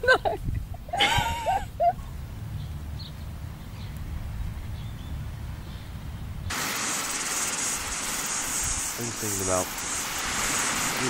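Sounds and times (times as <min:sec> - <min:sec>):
wind rumbling on microphone: 0:00.0 - 0:11.0
steady high hiss: 0:06.5 - 0:11.0
small waves breaking: 0:09.7 - 0:11.0.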